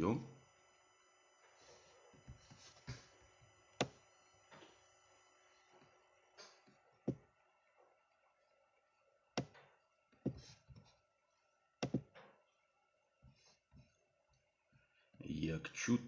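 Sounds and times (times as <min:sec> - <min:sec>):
faint electronic whine: 0:00.0 - 0:16.0
sharp clicks and knocks: 0:09.4 - 0:10.9, 0:11.8 - 0:12.6.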